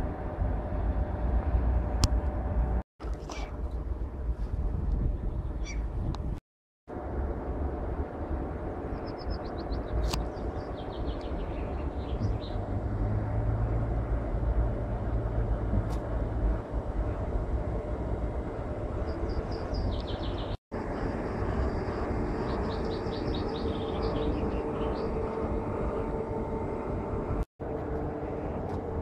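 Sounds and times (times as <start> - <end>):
train rumbling on rails: 0.0 - 2.8, 6.9 - 29.0.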